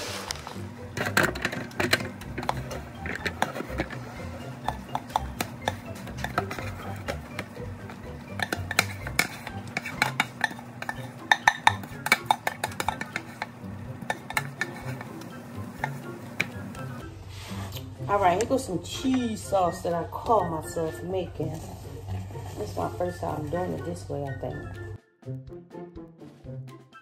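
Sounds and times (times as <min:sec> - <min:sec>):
knife scraping metal pot: 0:00.9 - 0:07.6, 0:08.2 - 0:17.8.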